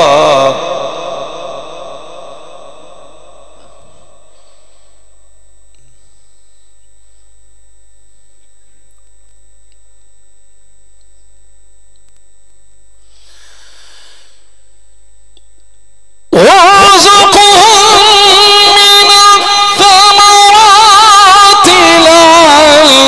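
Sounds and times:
electrical mains hum: 0.0s - 23.0s
thin high whine: 0.0s - 23.0s
faint hiss: 13.0s - 14.8s.

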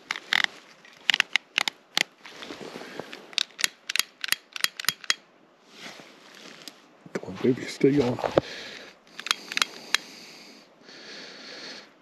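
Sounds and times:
lighter flint wheel clicking: 3.3s - 5.2s, 9.1s - 10.1s.

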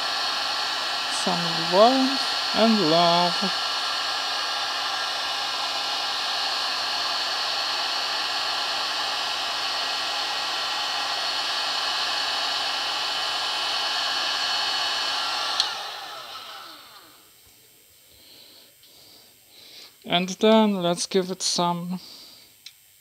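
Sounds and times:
hot air gun blowing: 0.0s - 17.2s.

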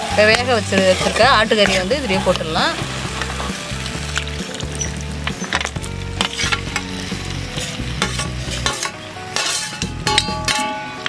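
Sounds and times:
meat sizzling in hot pan: 0.8s - 9.6s
steel ladle scraping a plate: 4.8s - 6.8s, 8.0s - 10.7s.

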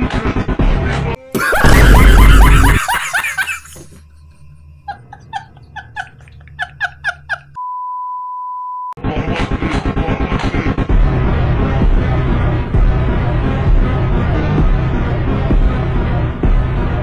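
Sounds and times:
loud music: 0.8s - 3.2s, 9.0s - 17.0s
steady censor bleep tone: 7.6s - 9.0s.

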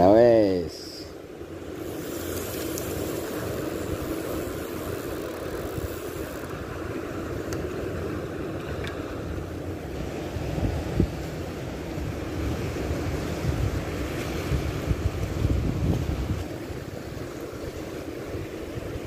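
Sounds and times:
small waves breaking: 0.0s - 19.0s
wind buffeting microphone: 1.7s - 19.0s.

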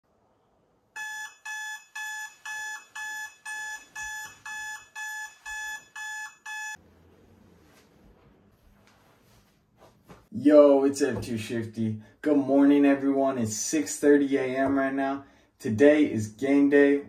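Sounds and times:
alarm clock beeping: 1.0s - 6.8s.

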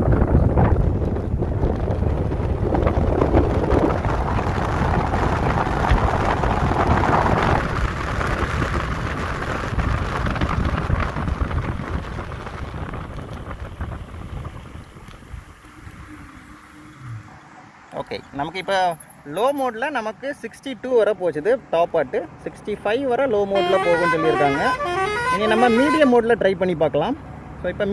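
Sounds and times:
wind buffeting microphone: 0.0s - 16.3s
electric motorcycle accelerating: 0.0s - 17.5s
road noise: 0.0s - 27.9s.

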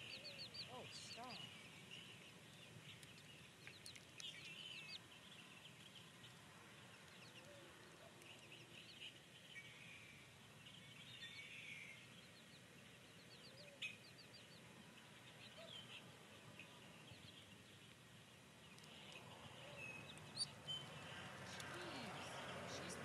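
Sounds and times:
chicks peeping: 0.0s - 7.5s.

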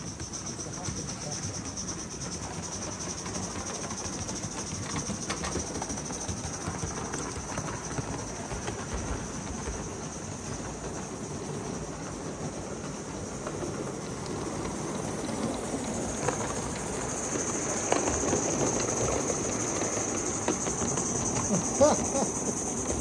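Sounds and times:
steam locomotive hissing: 0.0s - 23.0s
wheels clicking on rails: 0.0s - 23.0s.

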